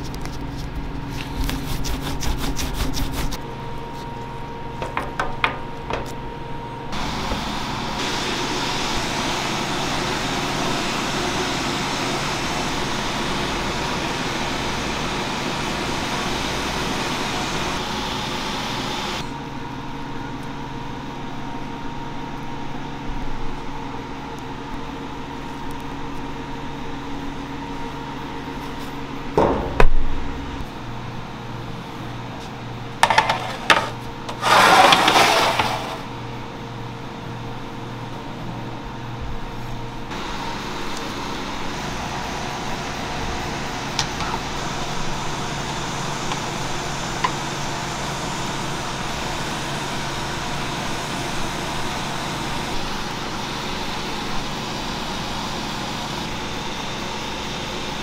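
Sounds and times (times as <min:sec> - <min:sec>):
trays clattering: 0:33.0 - 0:36.1.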